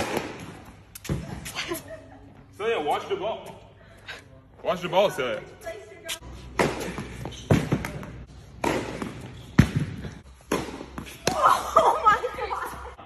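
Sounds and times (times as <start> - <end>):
tennis balls struck by racquets: 0.0 - 1.5, 6.4 - 11.8
tennis balls bouncing on court: 6.5 - 13.0.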